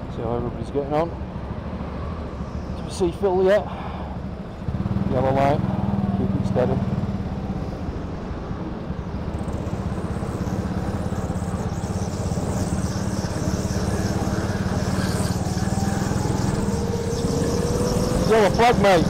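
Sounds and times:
go-kart engine running: 0:03.8 - 0:07.7, 0:08.9 - 0:19.0.

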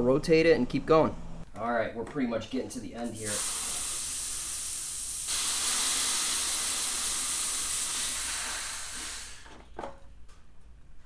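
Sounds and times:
pressurised air hissing: 0:03.0 - 0:09.6.

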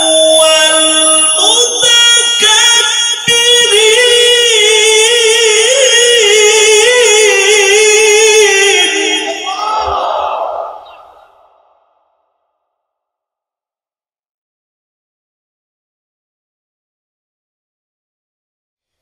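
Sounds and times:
man reciting melodically: 0:00.0 - 0:10.0.

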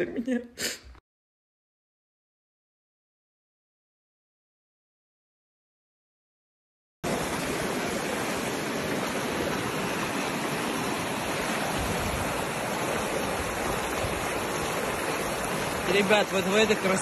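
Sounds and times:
river rushing over rocks: 0:07.1 - 0:17.0.

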